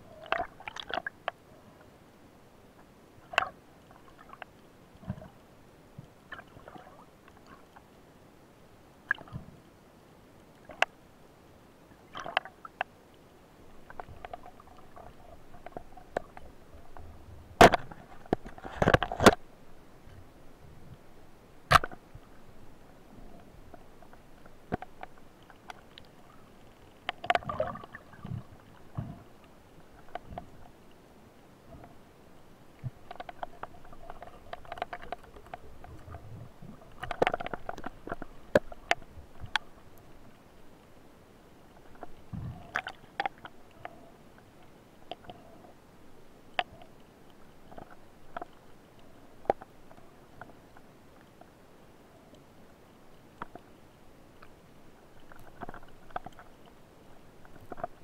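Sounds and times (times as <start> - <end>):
underwater clicks and knocks: 13.8 - 19.5, 21.7 - 22.3, 23.3 - 29.3, 30.0 - 30.7, 32.8 - 40.0, 41.8 - 44.0, 47.7 - 48.6, 53.4 - 53.7, 55.2 - 56.6, 57.4 - 58.0.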